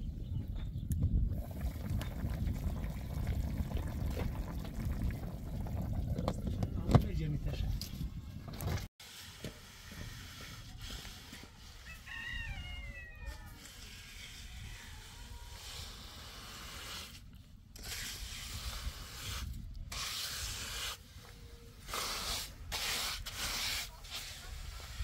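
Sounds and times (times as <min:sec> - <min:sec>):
trowel scraping wet concrete: 0:09.0 - 0:11.8, 0:13.5 - 0:25.0
rooster crowing: 0:11.8 - 0:13.7.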